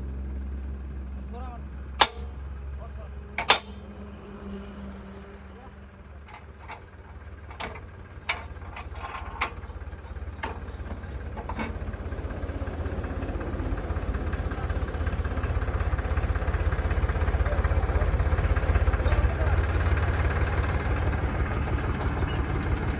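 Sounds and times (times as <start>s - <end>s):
tractor engine running: 0.0s - 22.9s
post driver pounding: 2.0s - 2.4s, 3.4s - 4.0s, 6.2s - 12.2s
sharp metal clanks: 2.0s - 2.4s, 3.4s - 4.0s, 6.2s - 11.9s.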